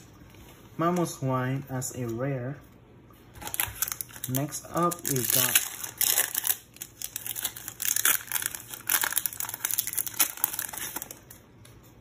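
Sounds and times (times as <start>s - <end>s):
foil wrapper crinkling and tearing: 3.4s - 11.4s.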